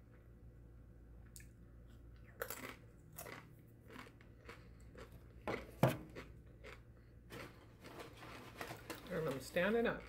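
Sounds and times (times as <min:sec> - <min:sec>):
faint crunching of tortilla chip: 0:02.0 - 0:10.0.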